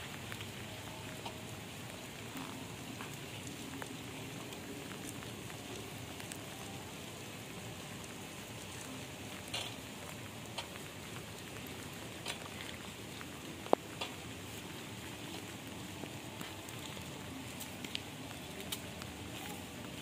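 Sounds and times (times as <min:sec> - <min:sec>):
embers stirred with a stick: 0:00.0 - 0:20.0
wood fire crackling and hissing: 0:00.0 - 0:20.0
sharp crack of embers: 0:07.6 - 0:20.0.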